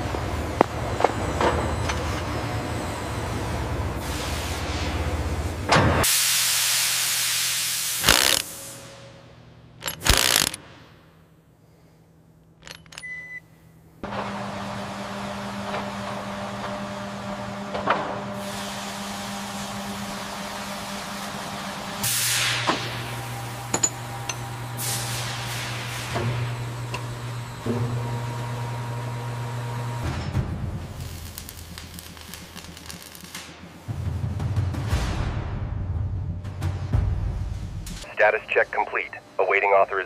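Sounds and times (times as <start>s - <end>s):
steady machine hum: 0.0s - 5.8s, 38.0s - 40.0s
loud machine hiss: 6.0s - 9.0s, 22.0s - 23.4s.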